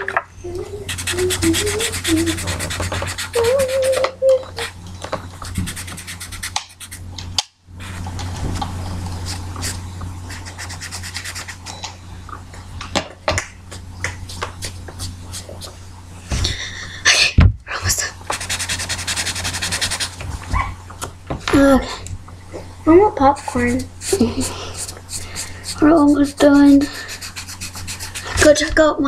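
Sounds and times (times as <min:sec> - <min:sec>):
marker scribbling on paper: 0:00.9 - 0:04.7, 0:05.4 - 0:07.0, 0:09.2 - 0:11.7, 0:18.3 - 0:20.2, 0:23.3 - 0:28.7.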